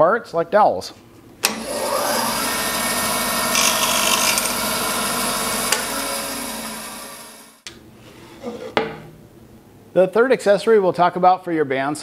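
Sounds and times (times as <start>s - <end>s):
bandsaw cutting dowel: 1.5s - 7.5s
bandsaw running: 1.5s - 7.6s.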